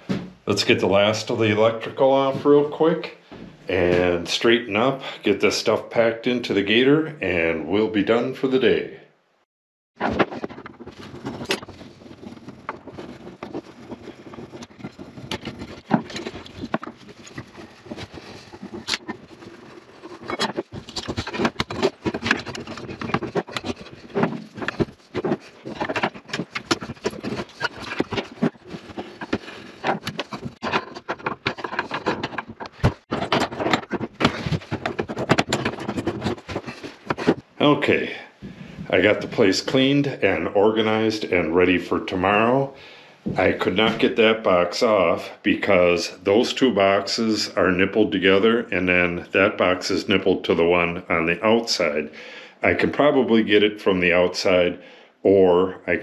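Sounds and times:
sharp irregular impacts: 0:10.0 - 0:37.6.

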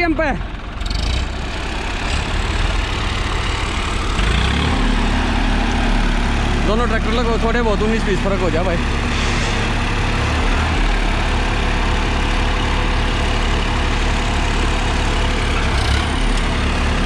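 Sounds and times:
tractor diesel engines running: 0:00.0 - 0:17.0.

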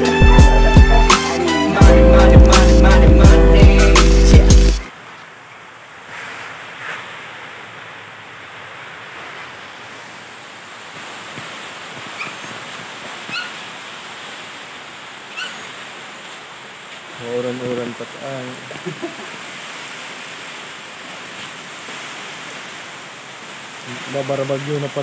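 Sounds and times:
dog whimpering: 0:13.3 - 0:13.6, 0:15.4 - 0:15.6.

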